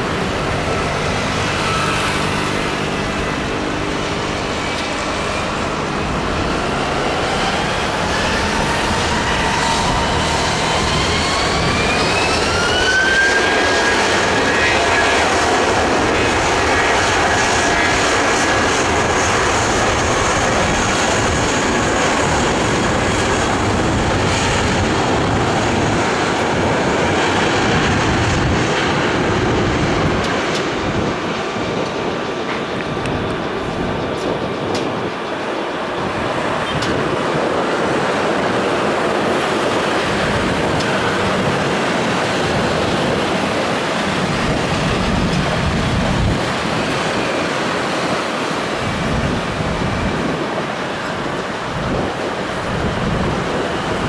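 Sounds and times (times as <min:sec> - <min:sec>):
jet engines spooling up: 0:00.0 - 0:54.0.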